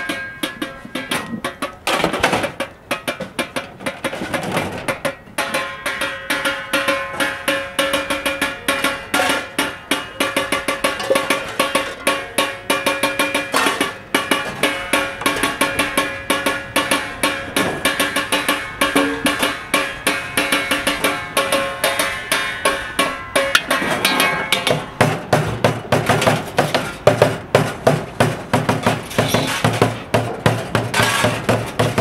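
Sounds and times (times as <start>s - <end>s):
metallic ringing: 0.0s - 1.8s, 5.0s - 25.1s
drumming on buckets and pots: 0.0s - 32.0s.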